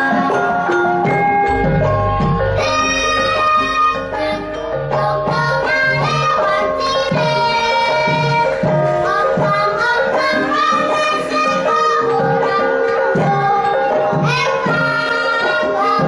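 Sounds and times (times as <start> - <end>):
metallophones and gong-chimes: 1.1 - 6.3.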